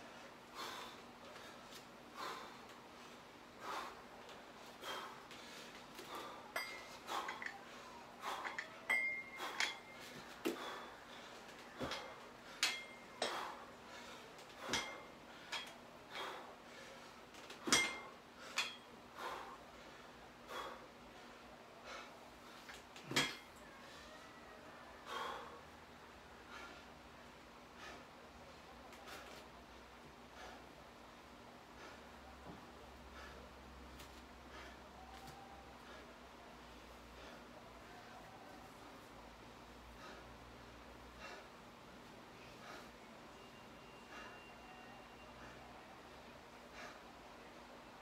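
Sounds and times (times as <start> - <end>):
hard breathing: 0.0 - 24.0, 24.9 - 48.0
metal dumbbell plates clinking: 6.5 - 7.6, 8.3 - 10.2, 11.8 - 13.6, 14.6 - 15.8, 17.6 - 18.9, 23.1 - 23.6.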